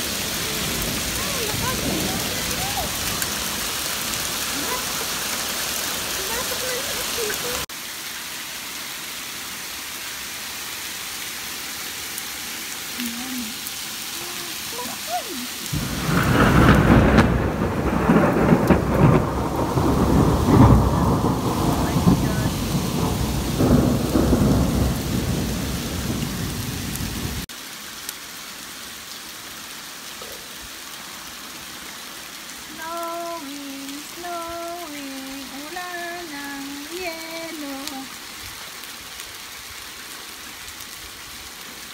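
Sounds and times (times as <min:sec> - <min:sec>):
thunder rumbling: 0:00.0 - 0:07.7, 0:15.7 - 0:27.5
rain and hail hissing: 0:00.0 - 0:41.9.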